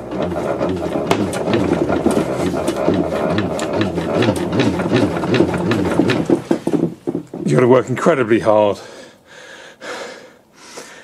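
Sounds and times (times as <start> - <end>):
hand-cranked generator whirring: 0.0 - 7.7.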